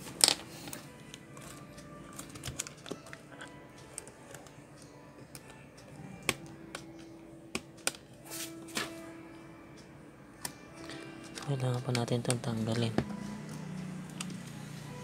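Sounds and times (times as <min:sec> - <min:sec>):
laptop keyboard clicking and tapping: 0:01.1 - 0:04.5, 0:06.2 - 0:08.0, 0:10.8 - 0:14.6.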